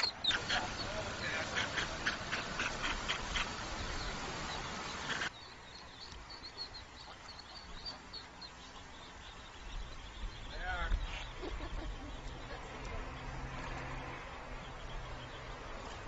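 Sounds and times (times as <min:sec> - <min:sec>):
duck quacking rapidly: 0:00.0 - 0:03.5
ducklings peeping: 0:00.0 - 0:16.0
outdoor noise: 0:00.0 - 0:16.0.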